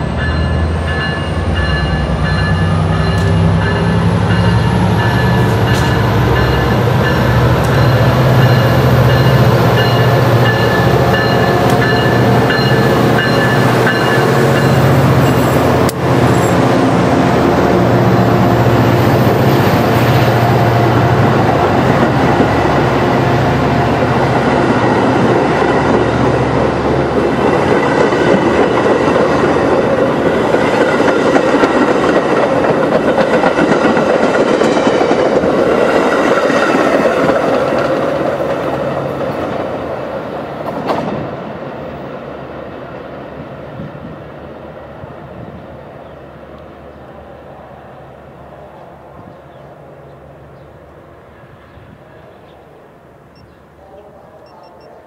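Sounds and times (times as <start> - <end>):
clickety-clack of train cars: 0.0 - 16.6, 23.9 - 41.6
train wheels rumbling on rails: 0.0 - 47.0.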